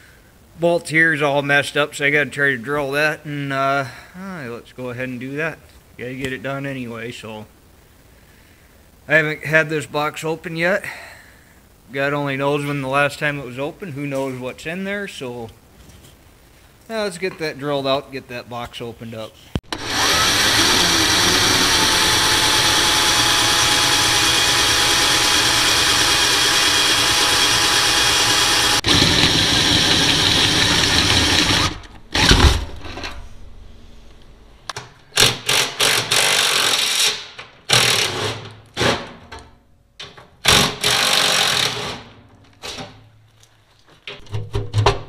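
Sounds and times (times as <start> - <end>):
power drill drilling into metal: 19.7 - 32.5, 40.5 - 42.0.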